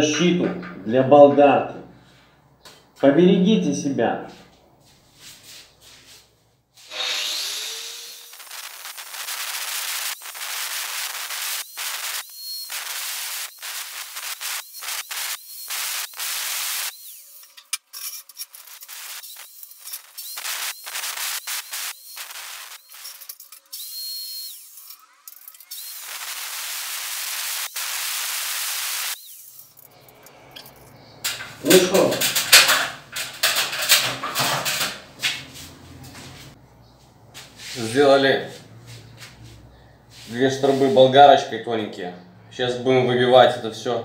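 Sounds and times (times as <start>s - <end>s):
angle grinder cutting brick: 6.8s - 30.2s.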